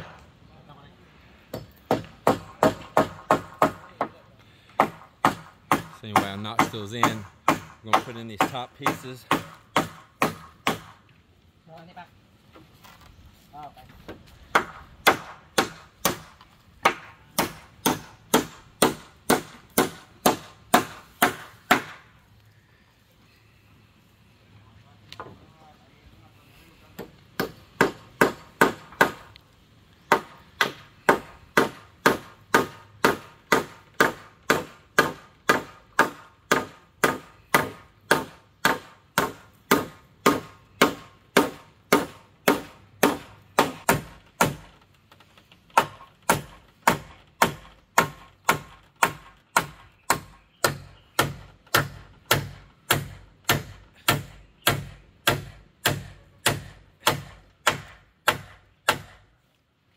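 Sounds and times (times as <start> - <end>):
hammer driving nails into wood: 4.8 - 11.0, 14.5 - 22.0, 30.1 - 44.7, 45.7 - 59.2.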